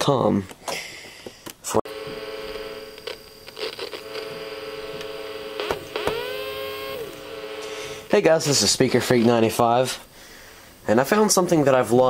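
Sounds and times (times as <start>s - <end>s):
electrical hum: 1.9s - 10.8s.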